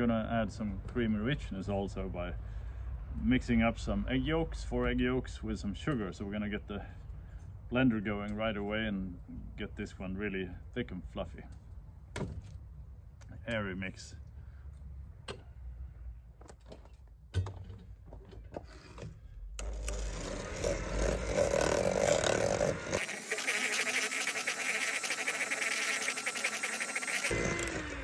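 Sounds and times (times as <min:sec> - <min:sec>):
electric hand mixer whisking: 0:19.6 - 0:28.0.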